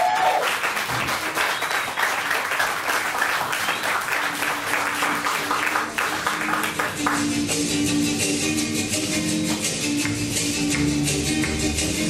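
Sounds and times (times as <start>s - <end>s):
audience applauding: 0.0s - 7.5s
music: 0.5s - 12.0s.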